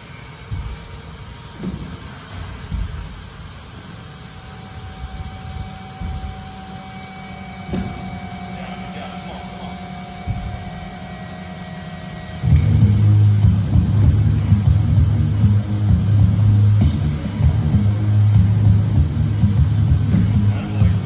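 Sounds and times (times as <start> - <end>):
steady low hum: 0.0 - 21.0
feet thumping on rubber gym floor: 0.5 - 3.7, 5.5 - 6.5, 10.2 - 11.3.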